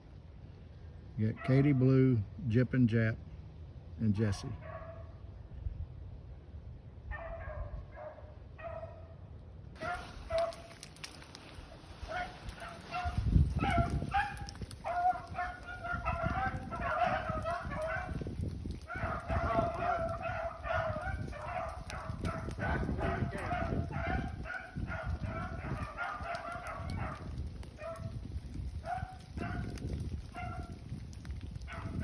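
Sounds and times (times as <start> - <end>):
hounds baying and barking: 4.3 - 5.2, 7.1 - 9.2, 9.8 - 31.0, 31.6 - 32.0
low rumble on microphone: 9.8 - 32.0.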